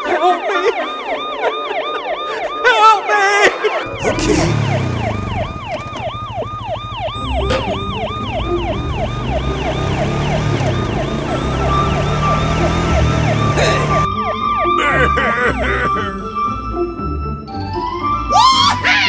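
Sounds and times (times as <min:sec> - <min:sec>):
police siren wailing: 0:00.0 - 0:16.6
low vehicle engine rumble: 0:03.9 - 0:14.1.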